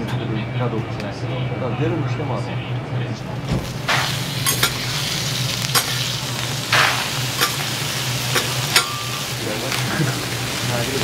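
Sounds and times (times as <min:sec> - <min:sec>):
low hum: 0:02.7 - 0:08.0
spatula scraping griddle: 0:03.3 - 0:09.0
food sizzling on a griddle: 0:03.5 - 0:11.0.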